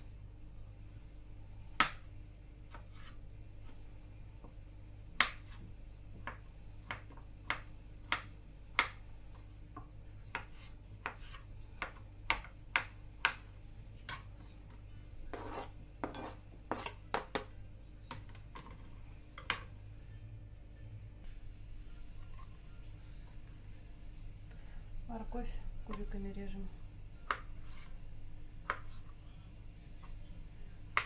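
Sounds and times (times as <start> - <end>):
knife scraping cutting board: 2.7 - 3.2, 10.4 - 11.5, 15.3 - 17.0, 27.6 - 28.0
knife chopping on cutting board: 5.2 - 5.6, 9.8 - 13.4, 15.3 - 17.5.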